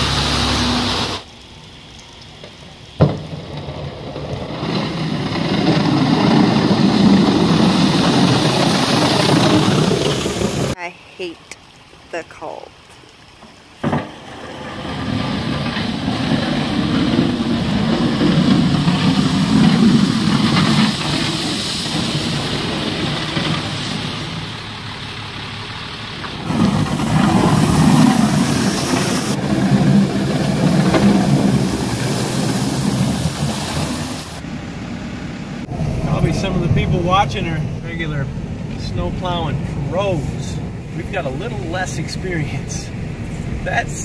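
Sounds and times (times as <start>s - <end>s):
diesel engine under load: 0.0s - 10.8s, 13.8s - 44.0s
plow blade scraping slush: 3.2s - 10.8s, 13.8s - 44.0s.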